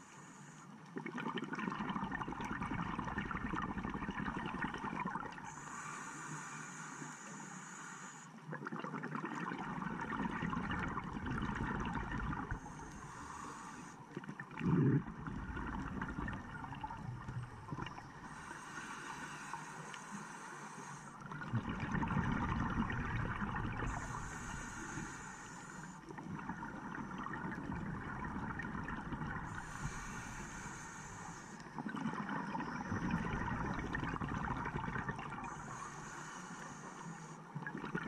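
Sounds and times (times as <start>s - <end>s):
regulator hissing inhalations: 5.4s - 8.4s, 12.5s - 14.2s, 18.2s - 21.2s, 23.8s - 26.1s, 29.5s - 31.8s, 35.4s - 37.6s
bubbling underwater exhalations: 8.6s - 12.6s, 14.2s - 18.1s, 21.3s - 24.2s, 26.2s - 30.2s, 31.8s - 35.5s.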